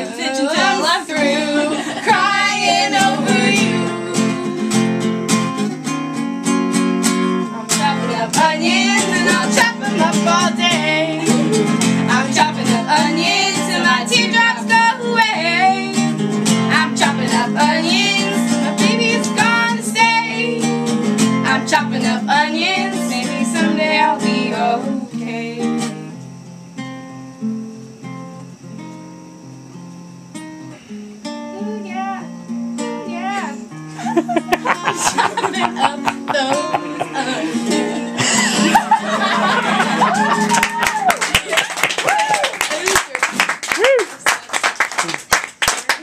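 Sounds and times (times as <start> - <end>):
woman singing: 0.0 - 4.9, 7.7 - 25.9, 34.7 - 38.2
acoustic guitar strumming: 0.0 - 41.2.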